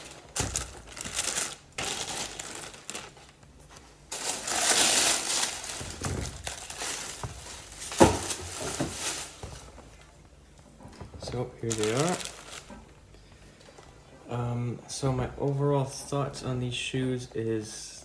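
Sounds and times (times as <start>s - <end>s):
plastic bags and tissue crinkling: 0.0s - 14.0s.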